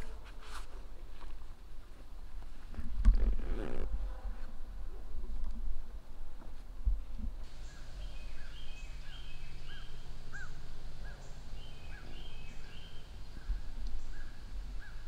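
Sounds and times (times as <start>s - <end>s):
steady low rumble: 3.9s - 15.0s
small birds chirping: 7.4s - 15.0s.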